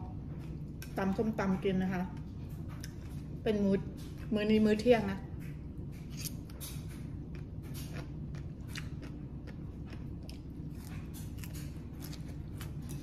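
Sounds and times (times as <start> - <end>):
person chewing crunchy vegetables: 5.8 - 13.0.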